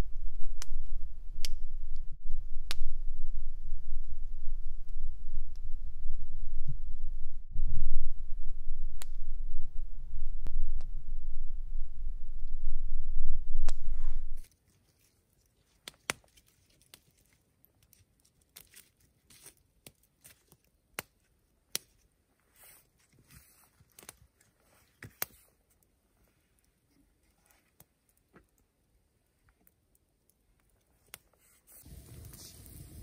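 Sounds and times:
loud low rumble: 0.0s - 14.4s
campfire crackling and popping: 0.3s - 3.0s, 9.0s - 9.3s, 15.8s - 18.6s, 31.8s - 33.0s.

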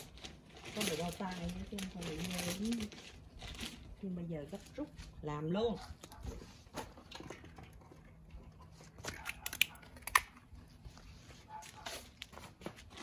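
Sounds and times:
plastic bag crinkling and rustling: 0.0s - 7.7s.

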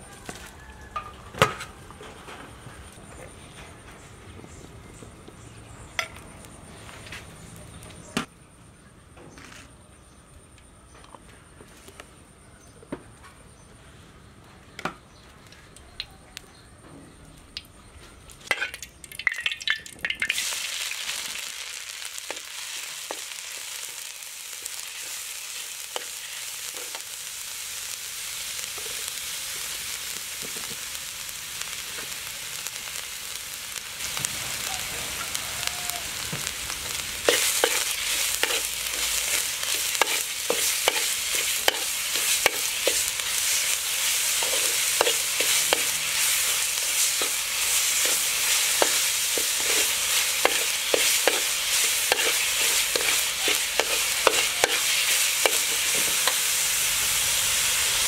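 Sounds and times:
paste sizzling in hot oil: 18.5s - 58.0s
metal spatula scraping a wok: 37.2s - 56.5s.

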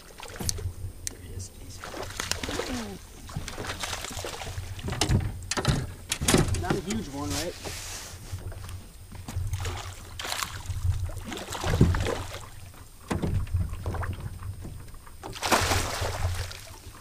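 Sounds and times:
fish splashing at water surface: 1.8s - 4.8s, 9.5s - 12.6s, 15.2s - 16.9s.

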